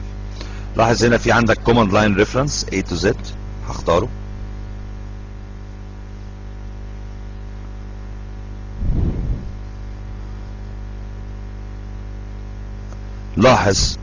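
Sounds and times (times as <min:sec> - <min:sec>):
electrical mains hum: 0:00.0 - 0:14.0
brief low rumble: 0:08.8 - 0:09.8.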